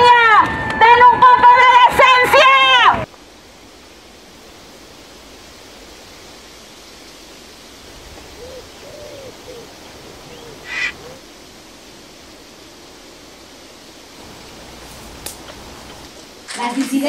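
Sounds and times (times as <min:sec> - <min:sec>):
steady soft hiss: 0:03.0 - 0:17.0
faint hooting calls: 0:08.0 - 0:11.2.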